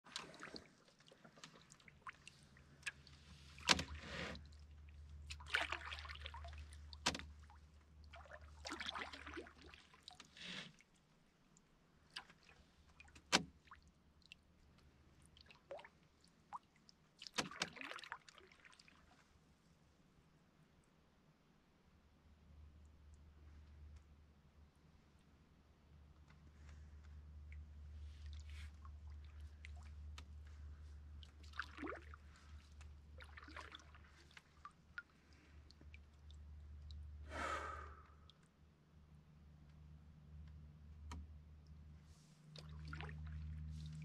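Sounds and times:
paddle splashing water: 0:00.0 - 0:11.0, 0:15.2 - 0:19.2, 0:27.8 - 0:36.2, 0:42.5 - 0:44.0.

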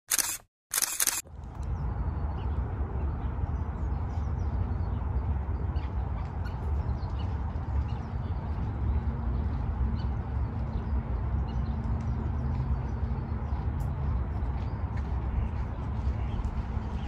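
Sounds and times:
steady low rumble: 0:01.3 - 0:17.0.

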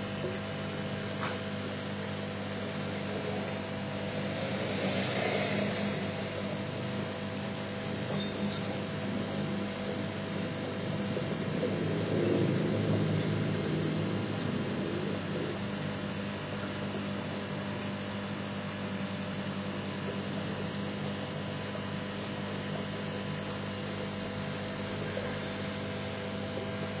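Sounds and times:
small motor humming: 0:03.1 - 0:10.8.

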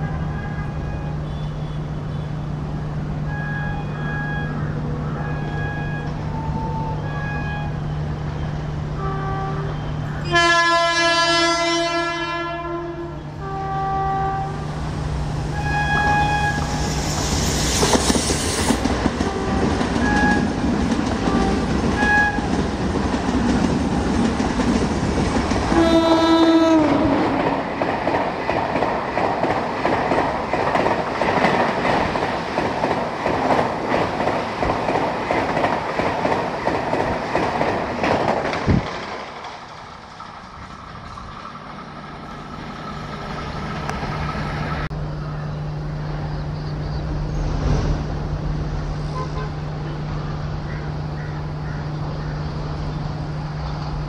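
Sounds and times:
locomotive horn blast: 0:03.3 - 0:07.9, 0:09.0 - 0:14.7, 0:15.5 - 0:17.0, 0:19.2 - 0:20.6, 0:21.2 - 0:22.5, 0:25.7 - 0:27.4, 0:49.0 - 0:50.4
train wheels rushing: 0:14.7 - 0:44.9
clickety-clack over rail joints: 0:17.8 - 0:42.9.

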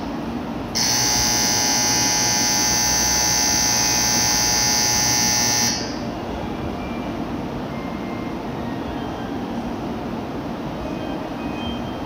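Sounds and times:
electronic bell buzzing: 0:00.8 - 0:06.0.

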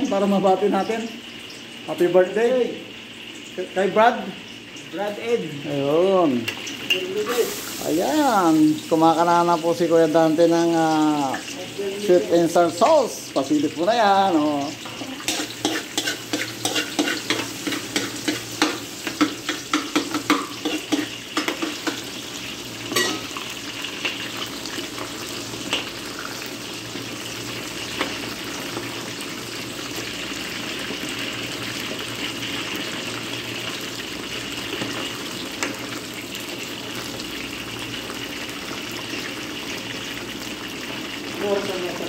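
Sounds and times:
food deep-frying in oil: 0:00.0 - 0:42.0
metal spoon clacking against wok: 0:14.8 - 0:22.0, 0:22.9 - 0:23.4.

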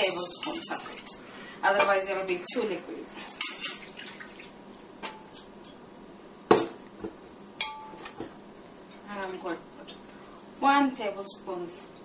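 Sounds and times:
metal spoon clinking on bowl: 0:07.6 - 0:08.0.

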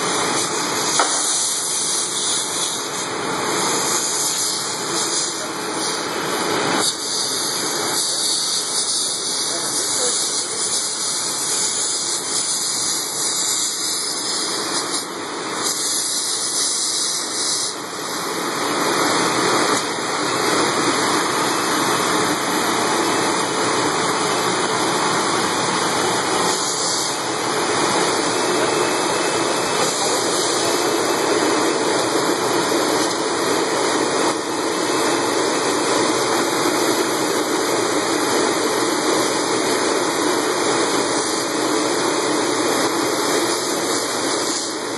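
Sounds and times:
motor and pump humming: 0:00.0 - 0:44.9.

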